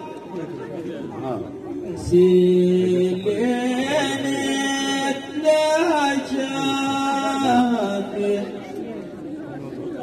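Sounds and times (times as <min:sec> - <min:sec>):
men singing a chant: 0:02.0 - 0:08.5.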